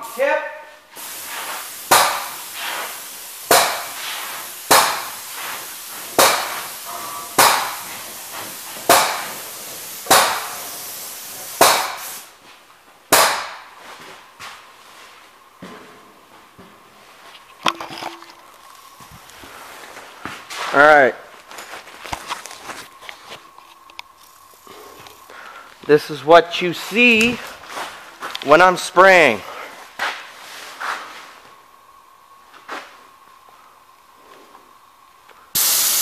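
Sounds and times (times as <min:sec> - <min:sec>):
paint spray gun hissing bursts: 0:01.0 - 0:12.3, 0:35.6 - 0:36.0.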